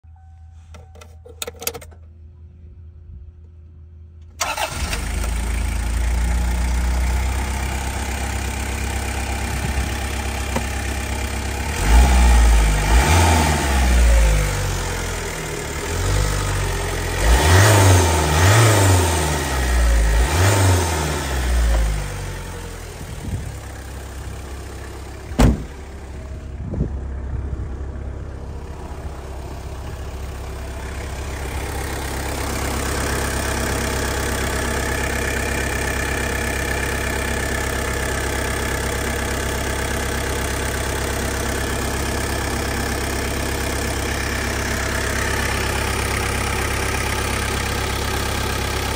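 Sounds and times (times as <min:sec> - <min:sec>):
diesel engine idling and revving: 0:02.4 - 0:48.9
sharp knock: 0:25.4 - 0:25.7.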